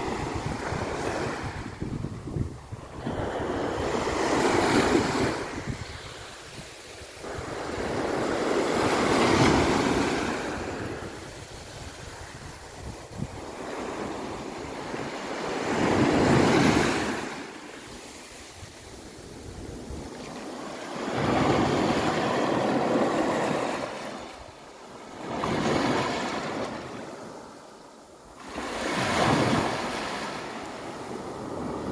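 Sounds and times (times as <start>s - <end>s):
small waves breaking on sand: 0.0s - 31.9s.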